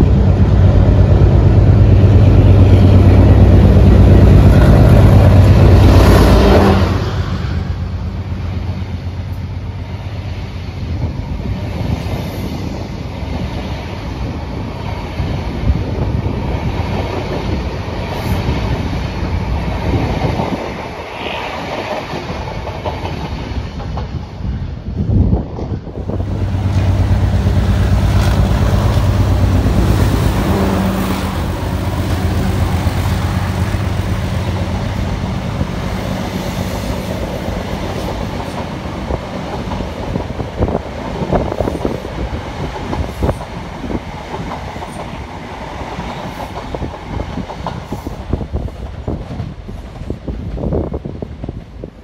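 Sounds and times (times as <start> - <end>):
train wheels clickety-clack: 10.9 - 24.5, 25.1 - 52.0.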